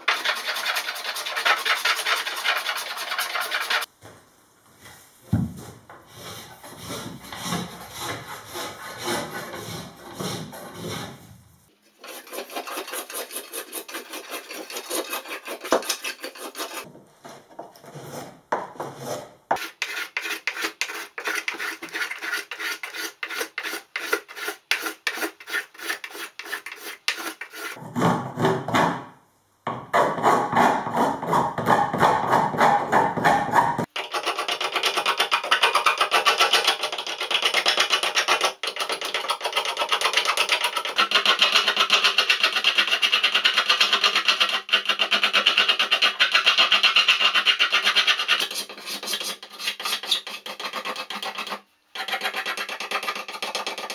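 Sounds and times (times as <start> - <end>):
hand plane shaving wood: 0.0 - 3.9, 6.1 - 11.2, 12.0 - 16.9, 18.9 - 27.8.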